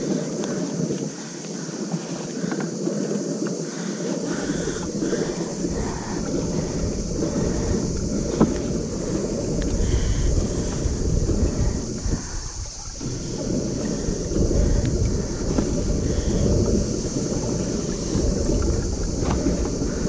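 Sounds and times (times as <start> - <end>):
wind buffeting microphone: 0.0 - 20.0
low rumble: 4.3 - 20.0.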